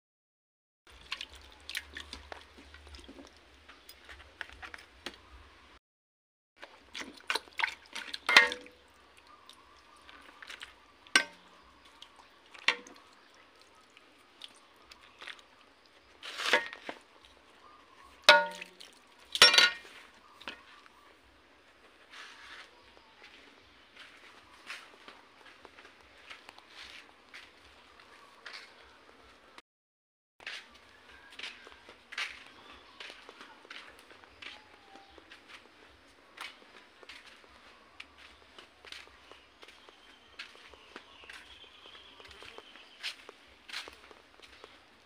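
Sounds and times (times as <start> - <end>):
ladle scraping metal pot: 7.1 - 8.8, 16.2 - 17.0.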